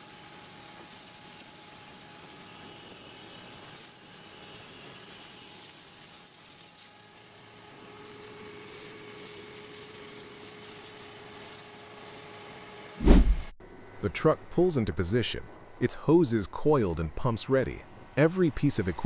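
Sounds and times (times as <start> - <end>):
vacuum truck engine and pump roar: 0.0 - 13.0.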